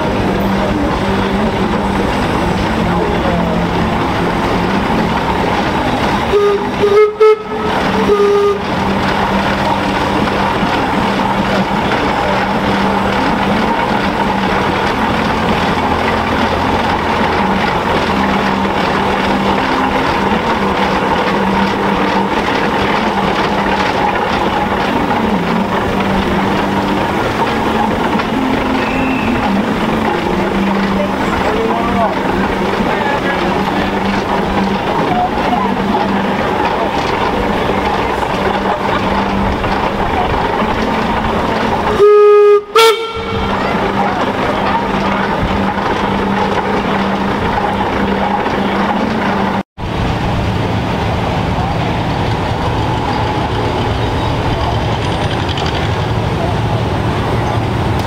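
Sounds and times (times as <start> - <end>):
steam traction engine droning: 0.0 - 58.0
steam whistle blowing: 6.3 - 9.0, 41.9 - 43.8.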